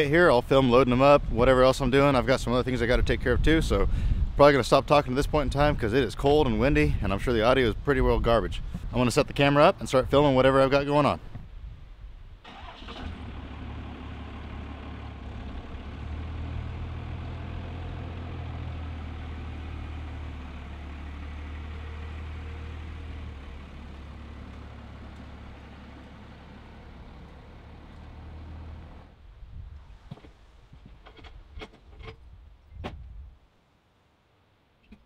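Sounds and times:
engine idling: 12.5 - 29.1.

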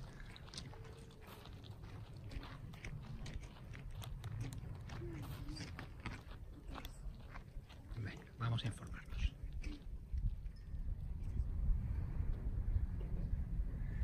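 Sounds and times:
footsteps on gravel: 0.0 - 9.0
wind on microphone: 9.2 - 14.0.

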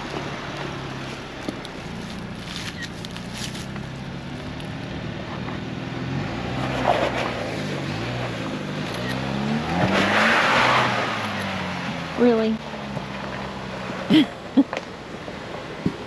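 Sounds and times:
off-road engine revving: 0.0 - 16.0
tyres crunching on rock: 0.2 - 4.6.

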